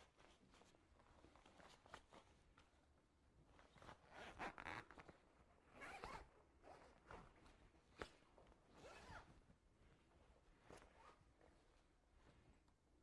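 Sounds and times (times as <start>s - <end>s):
zipper being pulled closed: 4.0s - 5.1s, 5.8s - 7.2s, 8.7s - 9.3s.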